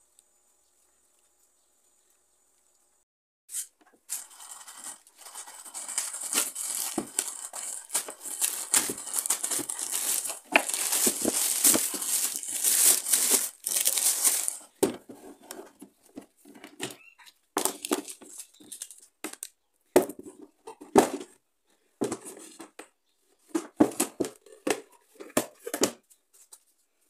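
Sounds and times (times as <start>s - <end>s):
plastic bag crinkling and rustling: 4.1s - 15.7s, 17.6s - 19.5s.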